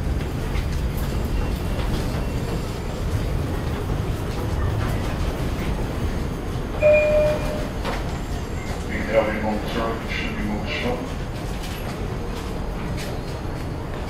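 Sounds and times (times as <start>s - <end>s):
subway train rumble: 0.0s - 14.0s
train door chime: 6.8s - 8.0s.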